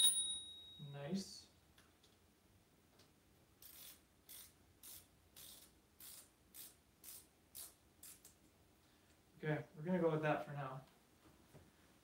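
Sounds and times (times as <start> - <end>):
ratchet wrench clicking: 3.6 - 7.7.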